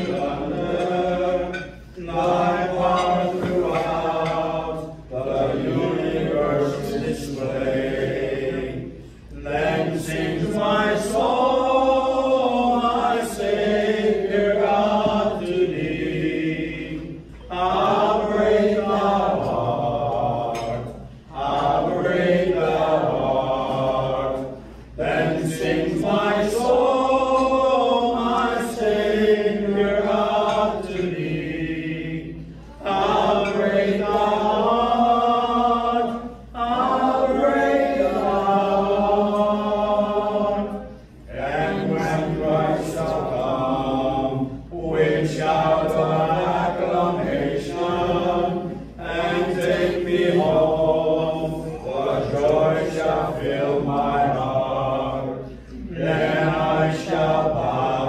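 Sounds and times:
men singing unaccompanied: 0:00.0 - 0:58.0.

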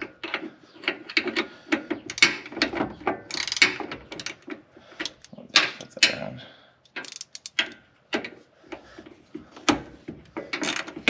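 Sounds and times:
socket ratchet clicking: 0:02.1 - 0:02.4, 0:03.3 - 0:04.4, 0:06.9 - 0:07.8.

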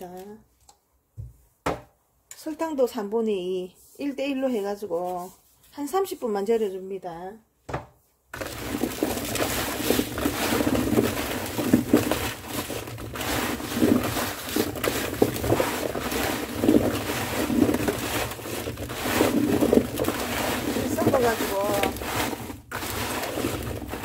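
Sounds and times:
radish cubes rustling in a bowl: 0:08.3 - 0:24.0.

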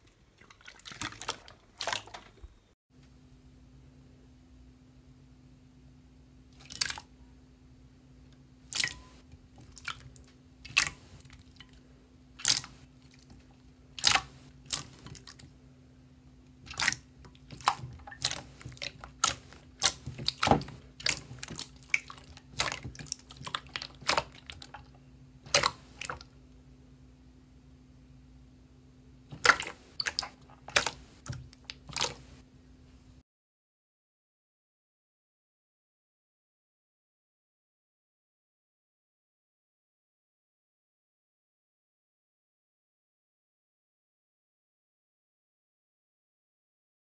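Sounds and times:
faint steady hum: 0:00.0 - 0:33.2
slime popping and squelching: 0:16.6 - 0:24.9, 0:25.5 - 0:26.2, 0:29.3 - 0:32.4.

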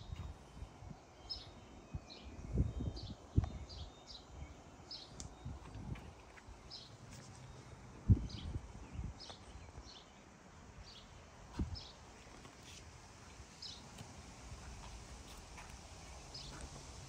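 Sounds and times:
small birds chirping: 0:00.0 - 0:16.9.

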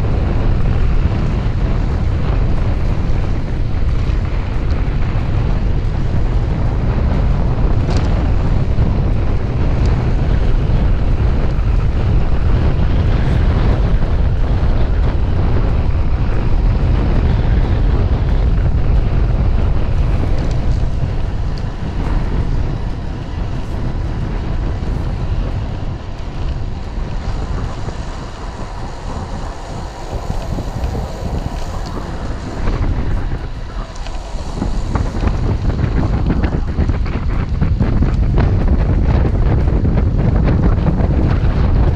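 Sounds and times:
wind buffeting microphone: 0:00.0 - 0:41.9.

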